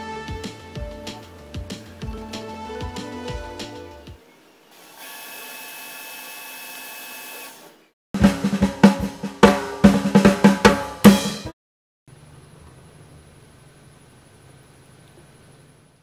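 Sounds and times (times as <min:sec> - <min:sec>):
sustained music chord: 0:00.0 - 0:04.1
drum fill: 0:00.3 - 0:03.8, 0:08.2 - 0:11.6.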